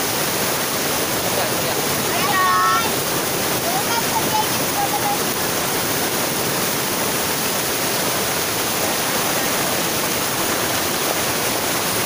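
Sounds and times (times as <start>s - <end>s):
waterfall pouring over rocks: 0.0s - 12.0s.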